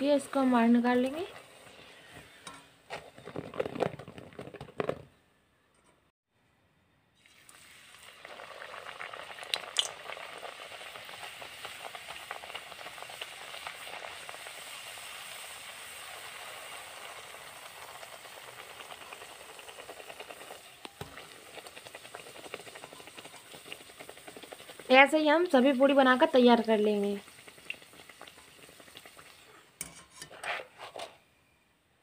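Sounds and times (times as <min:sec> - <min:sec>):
sizzling and bubbling oil: 0:00.0 - 0:02.8, 0:07.2 - 0:30.9.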